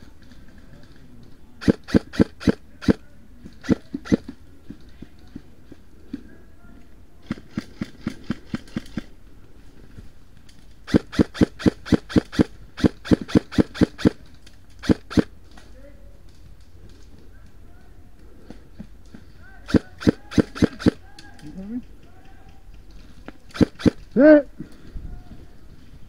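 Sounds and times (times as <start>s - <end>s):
airsoft rifle shots: 1.6s - 3.0s, 3.6s - 4.4s, 10.9s - 14.2s, 14.8s - 15.3s, 19.6s - 21.2s, 23.5s - 24.1s.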